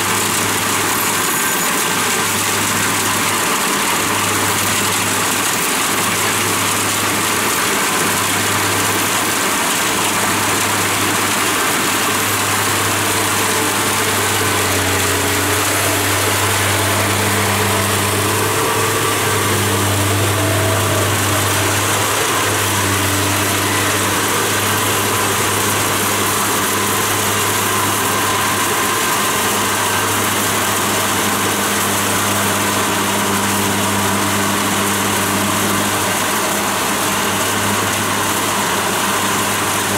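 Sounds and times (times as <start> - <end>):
combine harvester engine drone: 0.0 - 39.9
threshing machinery hiss: 9.8 - 30.7.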